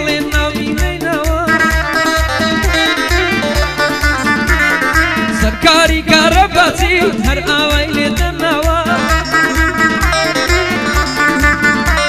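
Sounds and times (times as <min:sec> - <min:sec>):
man singing into microphone: 0:00.0 - 0:03.4, 0:05.2 - 0:10.9
instrumental backing with low beat: 0:00.0 - 0:12.0.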